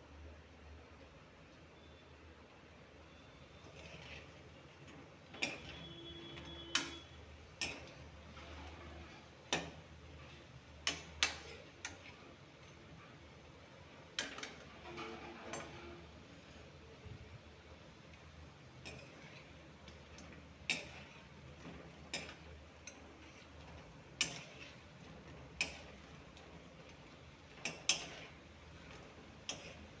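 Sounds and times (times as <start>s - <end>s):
frying oil: 0.0s - 30.0s
metal spatula clinking on wok: 6.7s - 8.0s, 18.8s - 21.2s, 22.1s - 23.4s, 24.2s - 24.7s, 27.5s - 28.3s, 28.9s - 30.0s.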